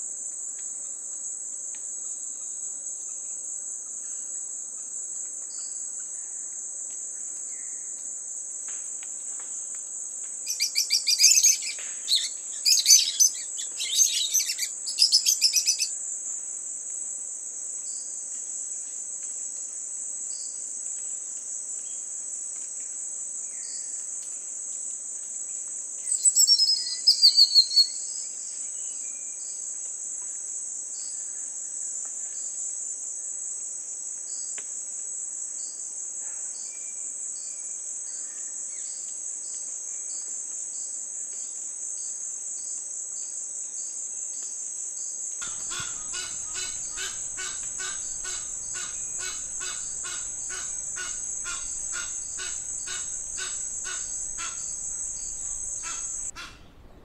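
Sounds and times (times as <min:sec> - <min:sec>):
rapid repeated bird calls: 0:10.5 - 0:15.9, 0:26.1 - 0:27.9, 0:45.4 - 0:56.8
high-pitched insect drone: 0:45.4 - 0:56.4.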